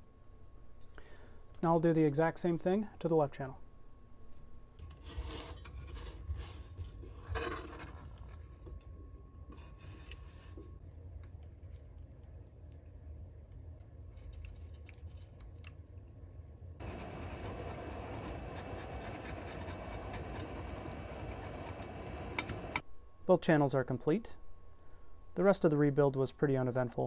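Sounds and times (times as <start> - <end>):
low hum: 0.0 - 27.0
hot-air nozzle hissing: 16.8 - 22.8.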